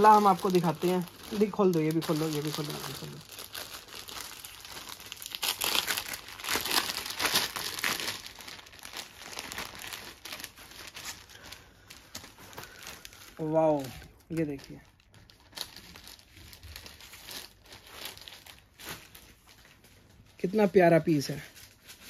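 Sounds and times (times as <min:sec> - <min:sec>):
plastic bags crinkling: 0:00.0 - 0:22.0.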